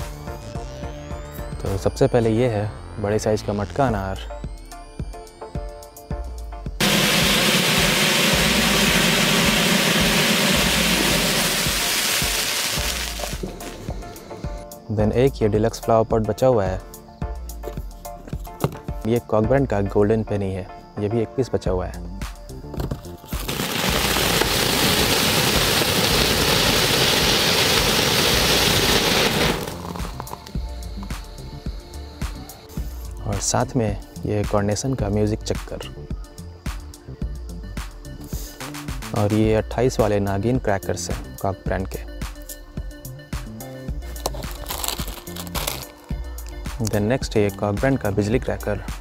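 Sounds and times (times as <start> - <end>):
fountain firework hissing: 6.8 - 14.4, 23.2 - 30.9.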